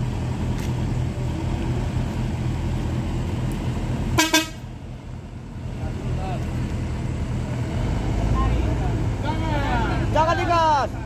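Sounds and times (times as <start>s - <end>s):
vehicle engine rumbling: 0.0s - 11.0s
vehicle horn double toot: 4.2s - 4.6s.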